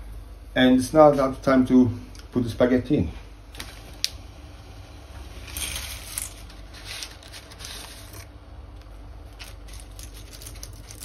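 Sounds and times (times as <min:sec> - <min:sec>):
plastic packet crinkling: 0:05.4 - 0:08.4, 0:09.2 - 0:11.0.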